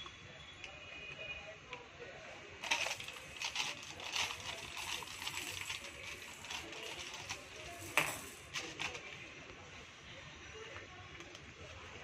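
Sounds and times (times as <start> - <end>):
plastic bag crinkling: 2.6 - 9.0.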